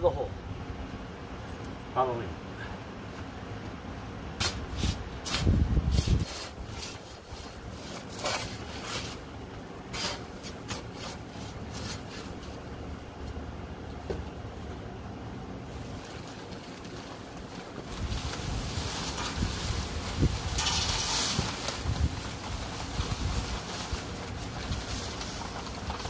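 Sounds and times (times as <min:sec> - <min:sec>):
metal bar stabbing paper sack: 0:04.4 - 0:09.3, 0:09.9 - 0:12.5, 0:17.9 - 0:26.0
paper crunching: 0:15.7 - 0:26.0.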